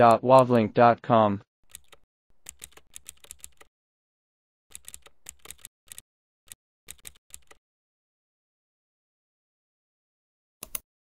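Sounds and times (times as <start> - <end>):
computer keyboard typing: 1.7 - 3.7, 4.7 - 6.0, 6.9 - 7.6, 10.6 - 10.8.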